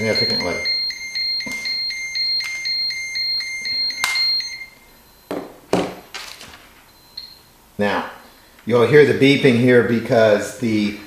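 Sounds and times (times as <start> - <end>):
radiation detector beeping rapidly: 0.0 - 6.1.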